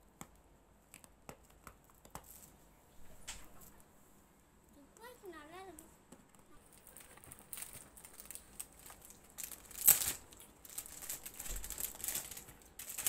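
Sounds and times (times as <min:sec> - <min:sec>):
packaging rustling and crinkling: 0:06.7 - 0:13.0.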